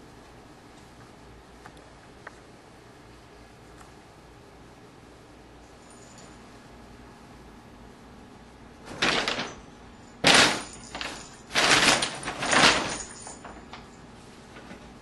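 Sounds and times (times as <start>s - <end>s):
paper bag crinkling: 8.8s - 14.0s.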